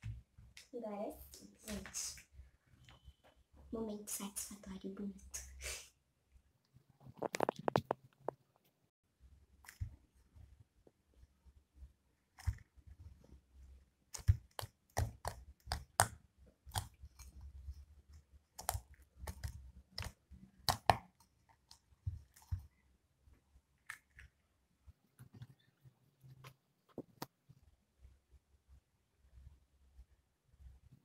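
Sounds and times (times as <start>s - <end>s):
slime clicking and popping: 14.1s - 17.2s, 18.5s - 21.2s.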